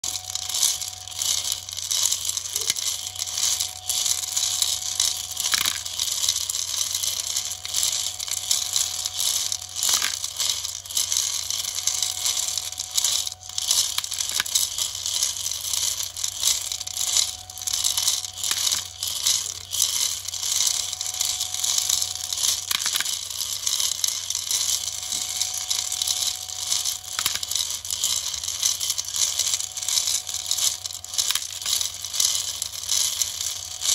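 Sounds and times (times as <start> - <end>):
stepper motor tone: 0.0 - 33.9
metal nuts clattering in drum: 0.1 - 33.9.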